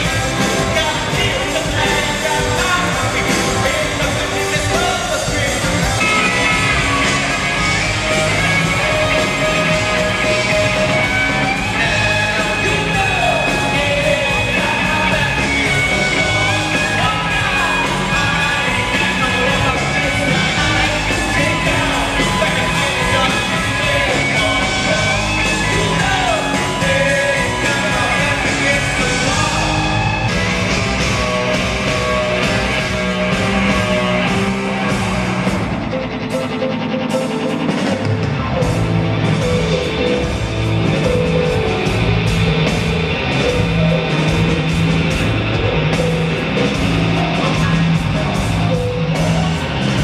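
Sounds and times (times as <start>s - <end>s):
person singing: 0.0s - 35.2s
live rock band: 0.0s - 50.0s.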